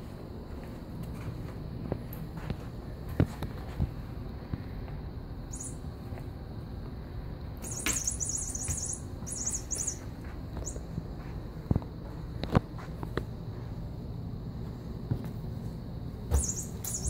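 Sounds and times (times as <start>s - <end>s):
cat toy ball jingling: 5.5s - 5.8s, 7.6s - 10.8s, 16.4s - 17.0s.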